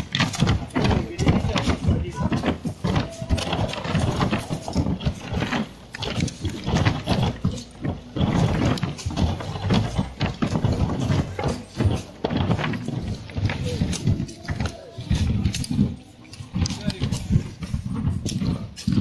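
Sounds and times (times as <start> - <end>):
soil thudding on wooden coffin lids: 0.0 - 19.0.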